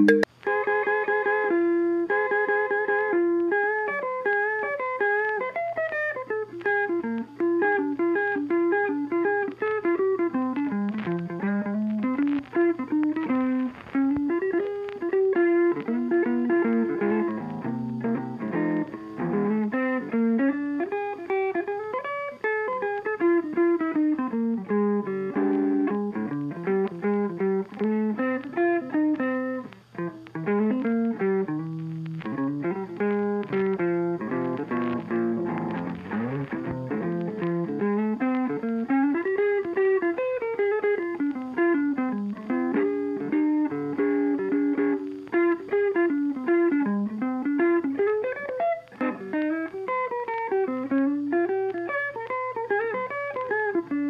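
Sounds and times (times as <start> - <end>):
plucked guitar melody: 0.0 - 54.0.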